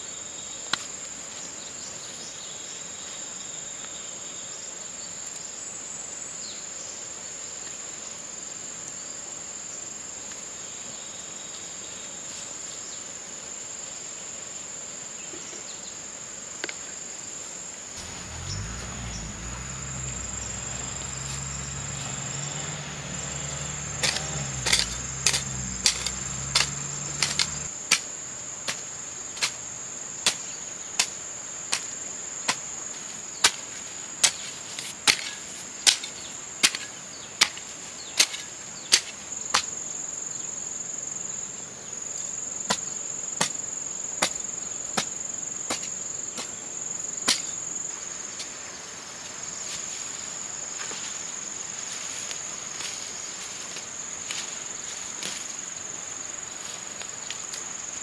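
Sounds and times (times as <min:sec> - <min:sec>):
insects shrilling: 0:18.0 - 0:27.7
low hum: 0:18.0 - 0:27.7
hoe chopping into soil: 0:23.9 - 0:29.6, 0:34.2 - 0:39.7, 0:44.2 - 0:44.4, 0:45.7 - 0:46.6.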